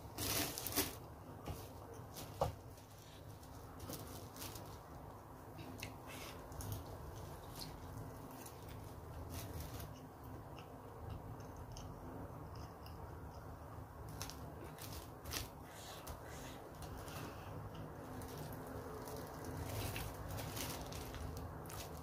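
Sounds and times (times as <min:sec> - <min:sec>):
person chewing: 0:05.6 - 0:13.5.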